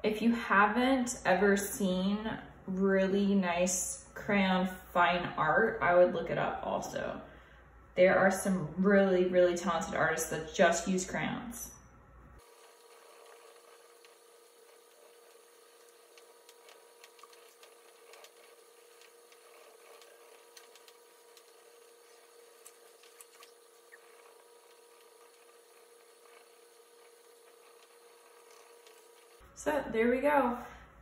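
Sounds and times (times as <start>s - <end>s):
faint steady hum: 0.0s - 31.0s
crayon scratching on paper: 12.5s - 29.3s
small ticks: 15.2s - 29.4s.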